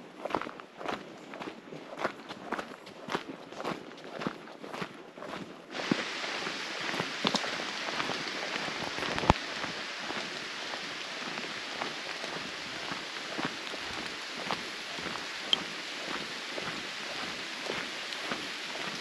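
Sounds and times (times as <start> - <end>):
footsteps on a dirt path: 0.0 - 19.0
rain falling on foliage: 5.7 - 19.0.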